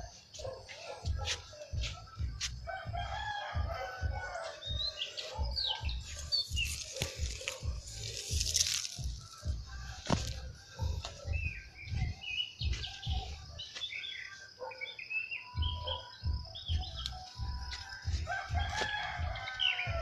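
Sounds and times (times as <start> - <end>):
small birds chirping: 0.0 - 20.0
rooster crowing: 2.6 - 5.8, 17.6 - 20.0.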